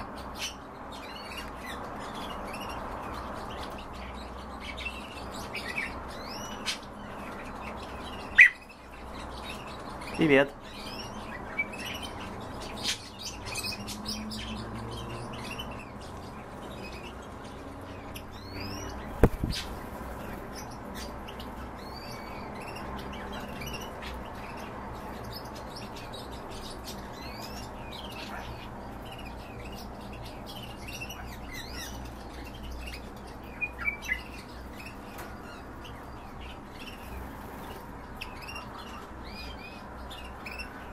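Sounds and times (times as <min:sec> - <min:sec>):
bird chirping: 0:00.0 - 0:40.9.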